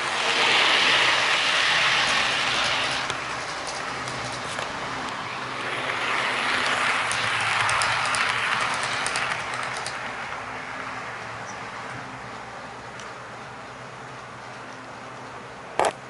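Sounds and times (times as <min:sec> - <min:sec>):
model train rolling hum: 0:00.0 - 0:15.8
light rapid clicks: 0:07.0 - 0:10.1.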